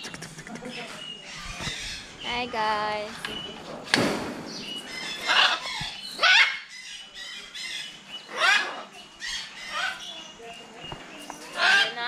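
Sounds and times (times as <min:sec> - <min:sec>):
macaws squawking: 0:04.8 - 0:10.2, 0:11.4 - 0:12.0.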